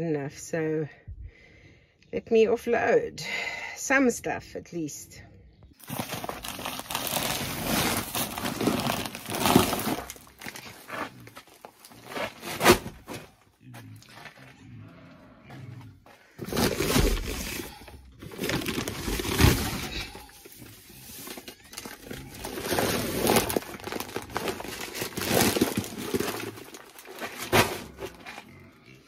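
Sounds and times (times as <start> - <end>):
heavy sack thumps: 5.8 - 10.6, 12.1 - 13.3, 27.2 - 28.2
sacks rustling: 5.8 - 13.4, 16.3 - 28.5.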